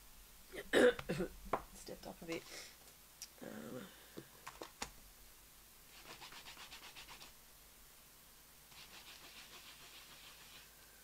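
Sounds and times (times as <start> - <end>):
faint rhythmic scratching: 5.9 - 7.4, 8.7 - 10.8.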